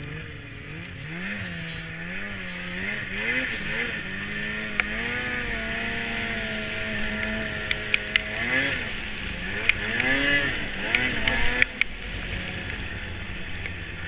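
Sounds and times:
snowmobile engine revving: 0.0s - 14.0s
sharp clicks and knocks: 7.1s - 8.4s, 9.0s - 12.5s.

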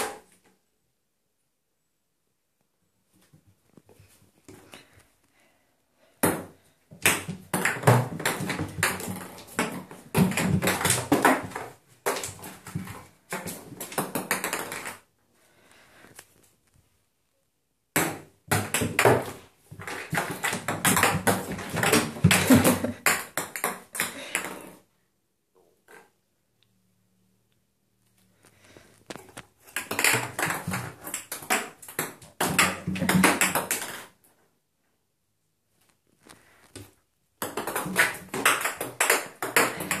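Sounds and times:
ping pong ball bouncing in bathtub: 6.2s - 15.0s, 18.0s - 24.6s, 29.7s - 34.1s, 37.4s - 40.0s
ping pong ball clattering in bathtub: 29.7s - 34.1s, 37.4s - 40.0s.

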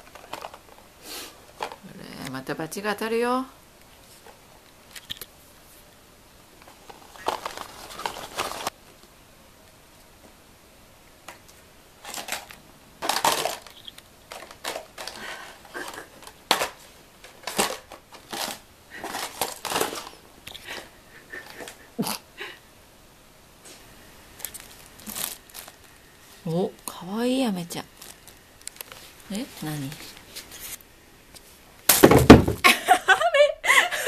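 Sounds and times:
paper rustling and crinkling: 6.6s - 8.8s, 11.5s - 20.8s, 24.4s - 25.9s, 27.9s - 30.8s.

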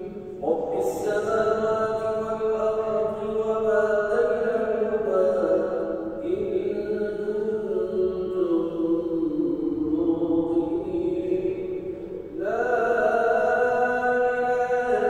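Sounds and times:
solo voice chanting: 0.0s - 15.0s.

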